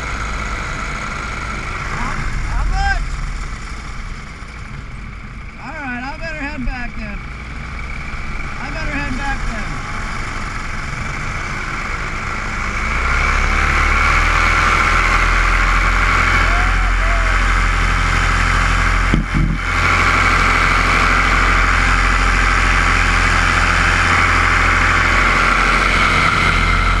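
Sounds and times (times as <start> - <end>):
paramotor engine and propeller: 0.0 - 27.0.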